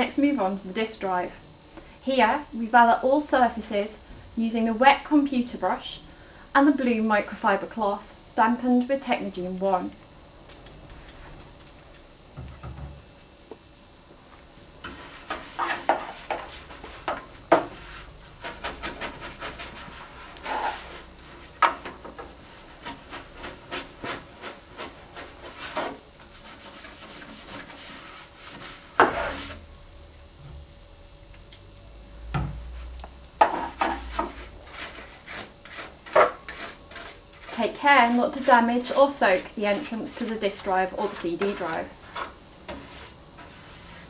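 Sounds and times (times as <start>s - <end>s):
brush scrubbing computer case: 14.8s - 17.1s, 17.7s - 21.6s, 22.4s - 29.6s, 33.9s - 44.0s.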